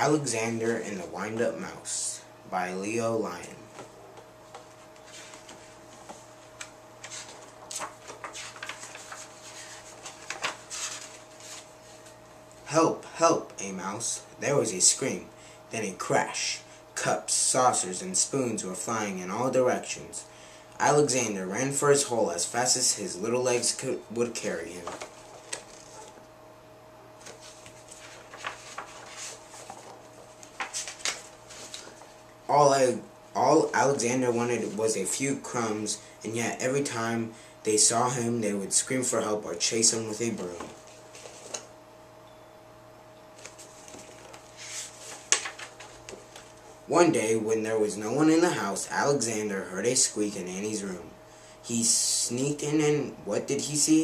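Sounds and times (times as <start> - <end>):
faint steady hum: 0.0 - 54.0
book pages turning: 4.6 - 12.2, 24.8 - 26.2, 27.2 - 32.1, 40.6 - 41.7, 43.4 - 46.6.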